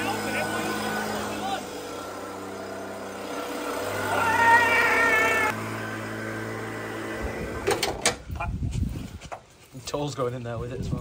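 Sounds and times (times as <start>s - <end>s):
leaf blower humming: 0.0s - 8.1s.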